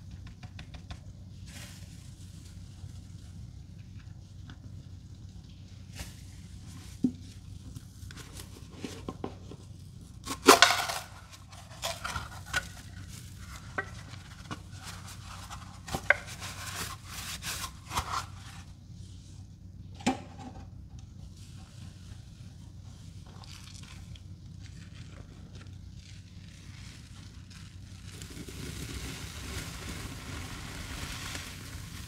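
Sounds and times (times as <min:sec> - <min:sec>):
sponges squeezed wet crunches: 0:23.0 - 0:32.0.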